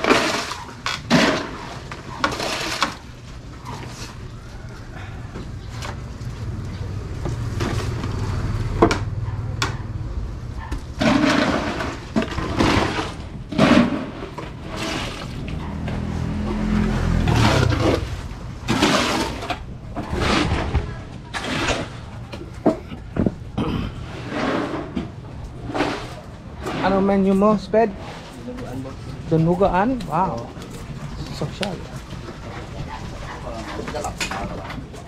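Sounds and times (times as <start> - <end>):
wet concrete sloshing: 11.0 - 16.2.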